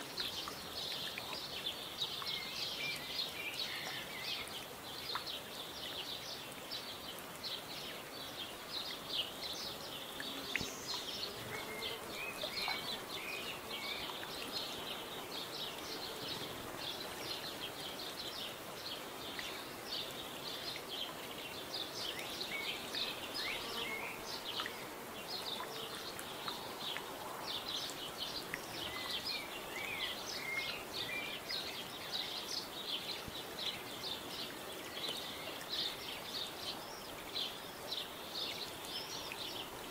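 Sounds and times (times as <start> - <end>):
faint outdoor hiss: 0.0 - 39.9
small birds chirping: 0.0 - 39.9.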